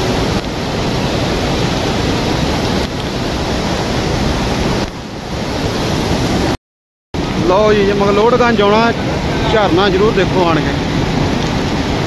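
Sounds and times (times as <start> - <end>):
waterfall rushing water: 0.0 - 6.6, 7.2 - 12.0.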